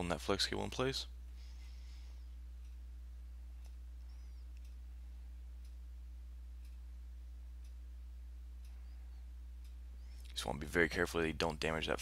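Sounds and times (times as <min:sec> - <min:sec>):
low electrical hum: 0:00.0 - 0:12.0
faint ticks: 0:01.4 - 0:06.0, 0:06.6 - 0:07.0, 0:07.6 - 0:07.8, 0:08.6 - 0:10.5.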